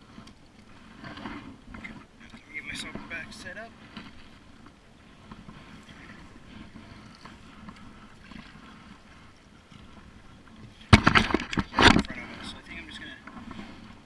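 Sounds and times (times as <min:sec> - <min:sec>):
paddle splashing and dripping: 0:03.7 - 0:12.0.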